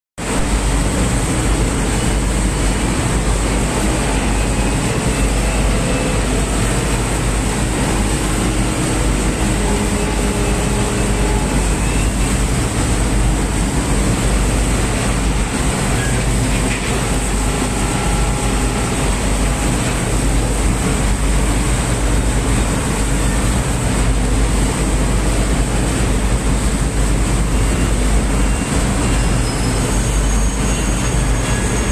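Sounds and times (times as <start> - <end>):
factory machinery din: 0.2 - 31.9
deep machine hum: 0.3 - 23.1.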